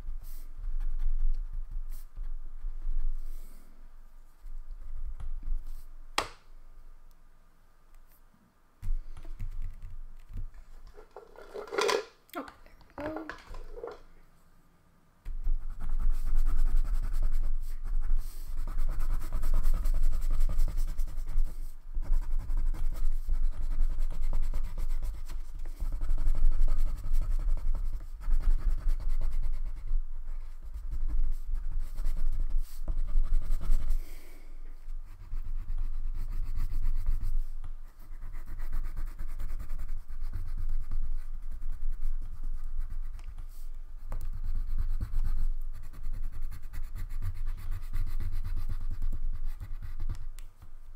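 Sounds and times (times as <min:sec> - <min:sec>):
crayon scribbling on paper: 0:15.4 - 0:34.1, 0:34.8 - 0:50.4.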